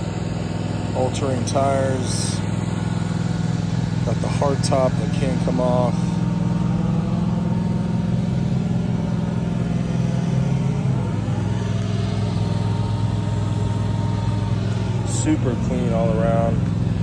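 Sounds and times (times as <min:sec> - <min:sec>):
vehicle engine idling: 0:00.0 - 0:17.0.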